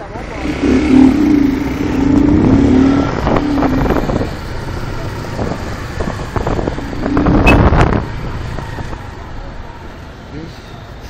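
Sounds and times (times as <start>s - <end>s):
road traffic: 0.0s - 11.0s
wind on microphone: 0.8s - 9.0s.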